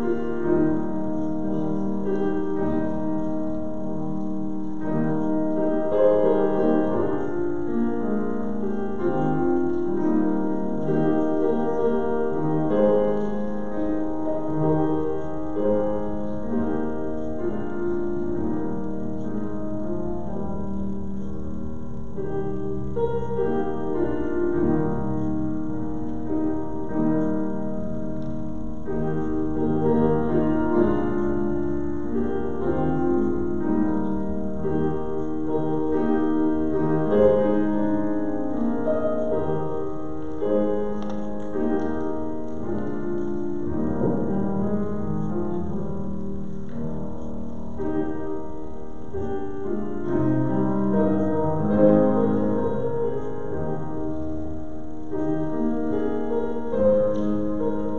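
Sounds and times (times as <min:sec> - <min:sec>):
piano playing held chords: 0:00.0 - 0:57.9.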